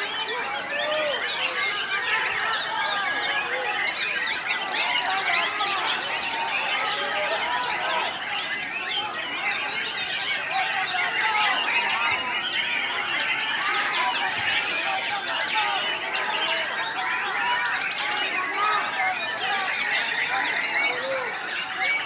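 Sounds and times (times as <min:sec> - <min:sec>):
chorus of birds singing: 0:00.0 - 0:22.0.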